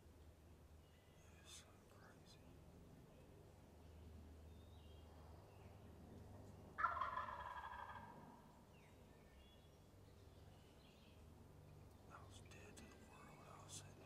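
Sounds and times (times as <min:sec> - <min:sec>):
turkey gobbling: 0:06.8 - 0:08.2.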